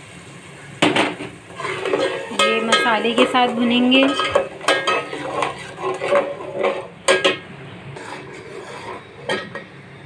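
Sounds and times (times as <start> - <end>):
spoon scraping a metal pot: 1.5 - 9.8
spoon clinking on pot: 1.8 - 7.4.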